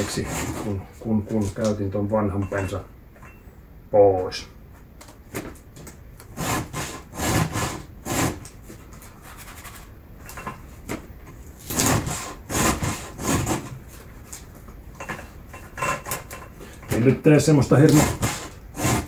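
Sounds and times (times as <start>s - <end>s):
file rasping on chainsaw chain: 0.0s - 0.8s, 17.6s - 19.0s.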